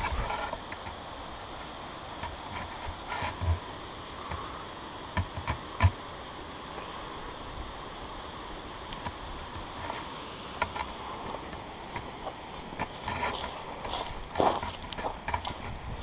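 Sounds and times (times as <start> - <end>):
steady rushing hiss: 0.0 - 16.0
footsteps on rocky trail: 9.6 - 16.0.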